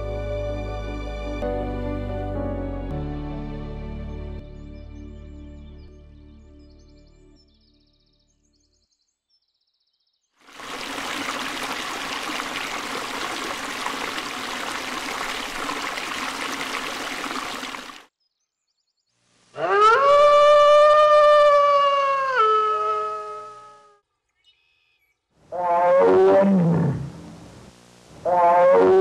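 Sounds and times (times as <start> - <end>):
animal howl: 19.6 - 24.0, 25.5 - 27.1, 28.2 - 29.0.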